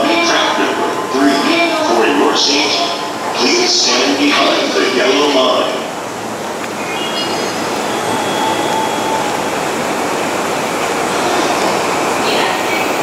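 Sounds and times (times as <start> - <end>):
electric train running: 5.9 - 13.0
high-pitched tones: 6.7 - 10.4.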